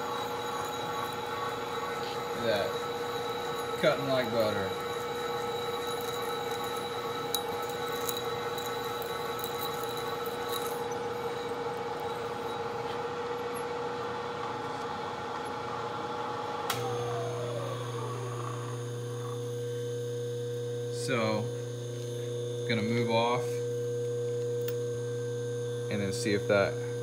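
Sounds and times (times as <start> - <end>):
spindle winding down: 0.0 - 15.2, 16.6 - 19.5
drill cutting steel whine: 0.0 - 15.8, 16.8 - 27.0
machine hum: 0.0 - 27.0.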